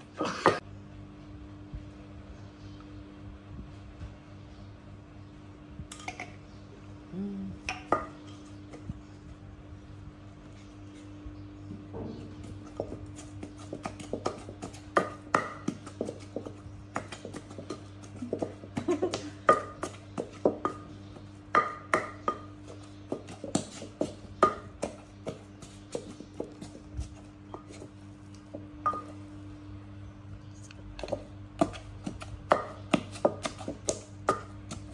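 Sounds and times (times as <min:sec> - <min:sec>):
pestle pounding in a mortar: 0:12.2 - 0:27.9, 0:31.0 - 0:34.9
ringing ping from mortar: 0:28.8 - 0:29.2.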